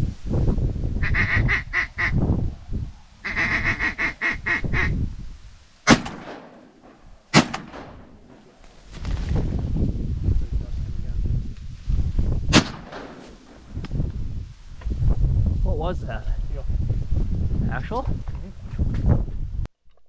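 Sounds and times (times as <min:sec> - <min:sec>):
ducks quacking: 0:01.0 - 0:02.2, 0:03.2 - 0:04.9
shotgun shots: 0:05.9 - 0:08.2, 0:12.5 - 0:13.4.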